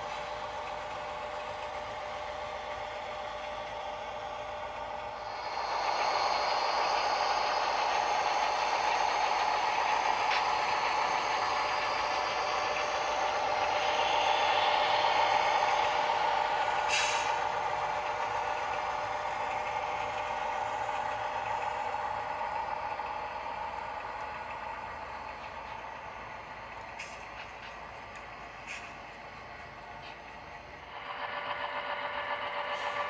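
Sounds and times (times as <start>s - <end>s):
model trains rolling on track: 0.0s - 33.0s.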